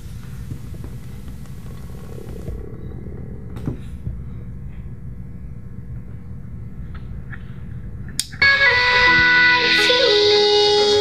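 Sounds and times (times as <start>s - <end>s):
low room noise rumble: 0.0s - 11.0s
music through desk speaker: 8.2s - 11.0s.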